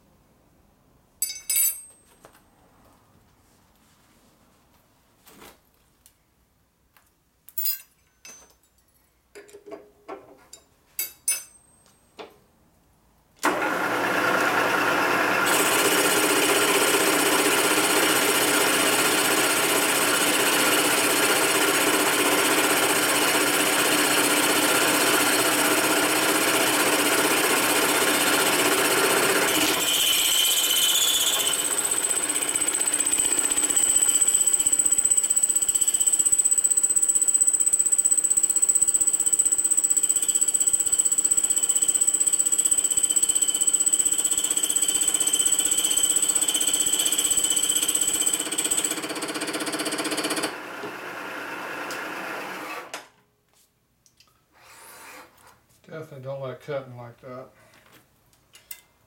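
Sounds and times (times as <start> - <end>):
milling machine running: 13.4 - 49.4.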